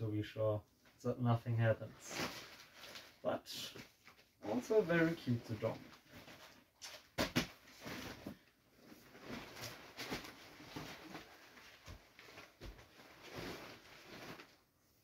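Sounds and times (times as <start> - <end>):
vinyl crinkling and rustling: 1.8 - 14.7.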